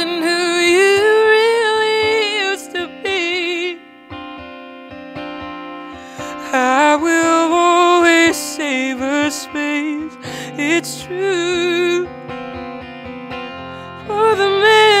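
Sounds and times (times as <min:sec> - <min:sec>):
woman singing: 0:00.0 - 0:04.2, 0:06.1 - 0:12.8, 0:13.5 - 0:15.0
acoustic guitar: 0:00.0 - 0:15.0.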